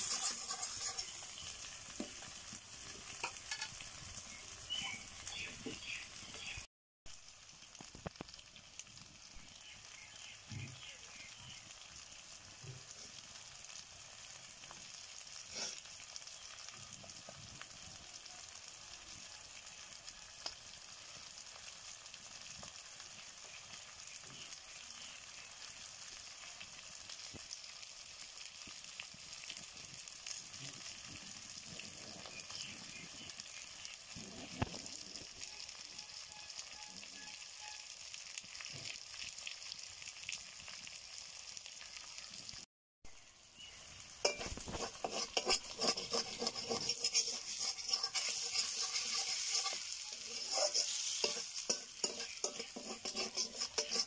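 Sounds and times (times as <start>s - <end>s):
food sizzling in oil: 0.0s - 54.0s.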